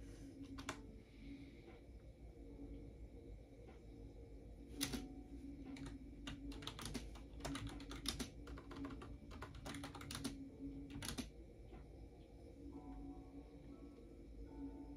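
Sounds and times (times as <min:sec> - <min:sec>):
typing on computer keyboard: 0:00.4 - 0:00.8, 0:04.8 - 0:05.1, 0:05.7 - 0:11.3.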